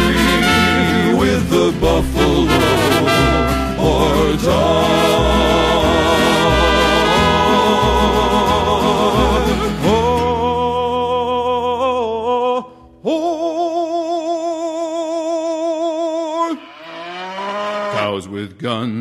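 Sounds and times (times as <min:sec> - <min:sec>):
singer holding vibrato notes: 0:00.0 - 0:10.2.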